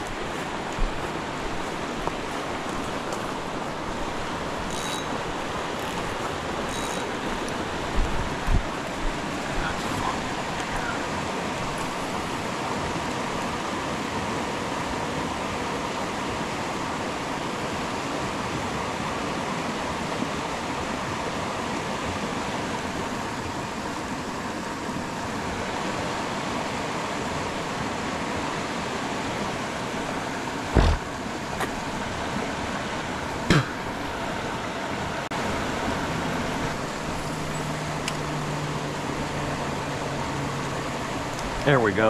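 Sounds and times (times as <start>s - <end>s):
creek water rushing over rocks: 0.0s - 42.0s
low thump: 30.7s - 31.1s.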